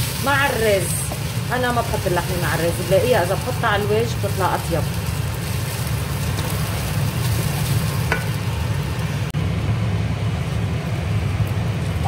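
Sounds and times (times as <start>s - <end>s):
rice sizzling in a pot: 0.0s - 9.3s
steady low hum: 0.0s - 12.0s.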